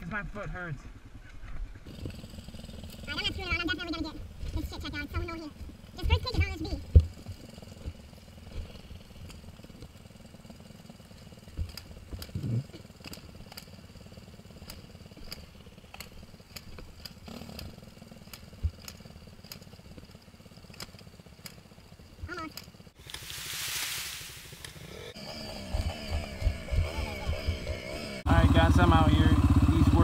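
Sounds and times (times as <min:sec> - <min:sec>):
dirt bike engine idling: 0:00.1 - 0:30.0.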